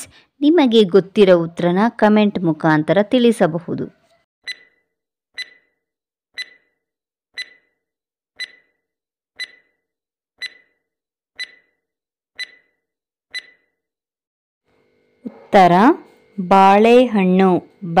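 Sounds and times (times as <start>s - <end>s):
stopwatch ticking: 5.4s - 5.7s, 6.4s - 6.7s, 7.4s - 7.7s, 8.4s - 8.8s, 9.4s - 9.8s, 10.4s - 10.8s, 11.4s - 11.8s, 12.4s - 13.6s.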